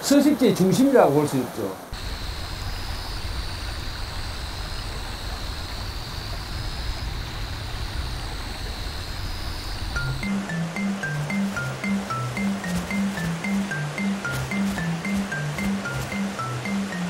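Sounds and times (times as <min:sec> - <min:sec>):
running water rushing: 0:00.0 - 0:17.0
plucked marimba-like music: 0:10.2 - 0:17.0.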